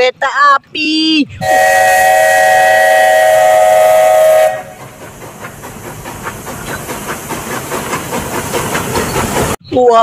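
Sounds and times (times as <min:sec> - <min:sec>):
steam whistle chord: 0:01.4 - 0:04.8
steam train rolling past: 0:01.4 - 0:09.8.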